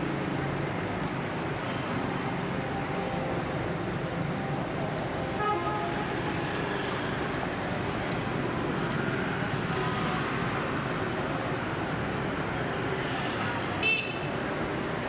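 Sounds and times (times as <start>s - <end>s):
street traffic: 0.0s - 15.0s
car horn beep: 5.4s - 6.1s, 13.8s - 14.3s.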